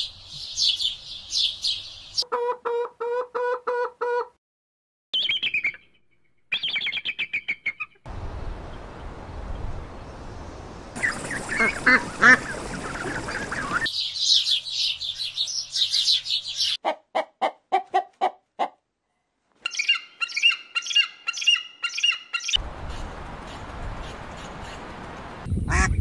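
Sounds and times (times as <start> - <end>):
bird calls: 5.2 - 8.0, 10.2 - 16.8, 19.6 - 25.1
squawking calls: 11.0 - 14.6, 19.7 - 24.9.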